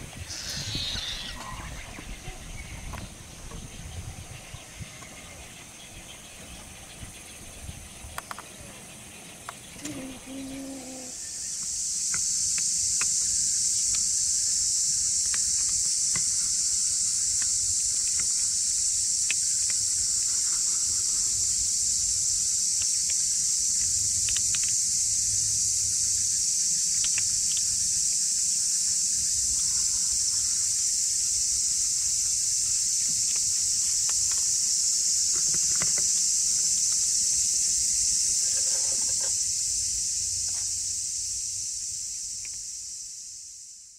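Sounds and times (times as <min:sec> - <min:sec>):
insect chorus drone: 0:00.0 - 0:43.9
faint ticks: 0:22.7 - 0:24.9, 0:26.9 - 0:27.8.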